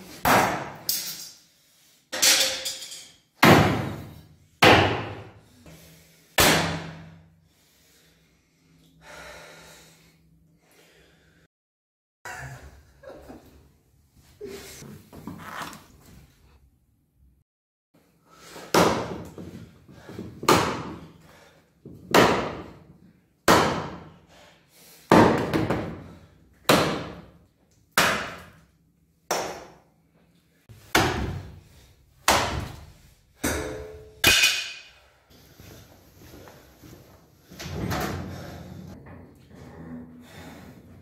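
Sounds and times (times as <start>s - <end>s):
axe chopping wooden log: 0.2s - 0.8s, 3.4s - 4.0s, 4.6s - 5.2s, 6.4s - 6.9s, 18.7s - 19.3s, 22.0s - 22.7s, 23.5s - 24.1s, 26.7s - 27.2s, 28.0s - 28.6s, 30.9s - 31.5s, 32.3s - 32.8s.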